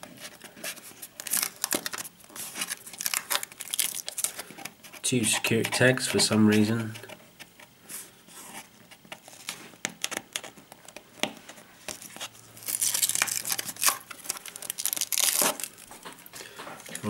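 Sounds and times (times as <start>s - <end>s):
sticker peeling off cardboard: 8.5s - 15.8s.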